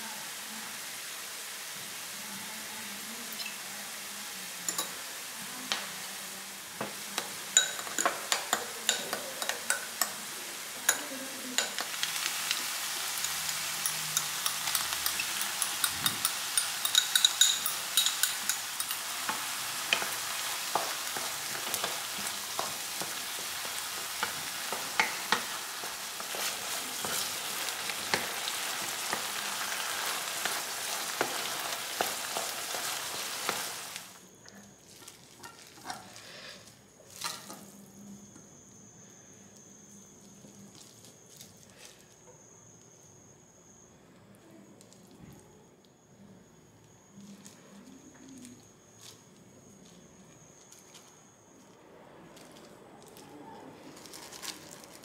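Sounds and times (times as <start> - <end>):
meat sizzling in a pan: 0.0 - 34.2
spoon and spatula scraping: 7.1 - 34.0, 34.6 - 37.8.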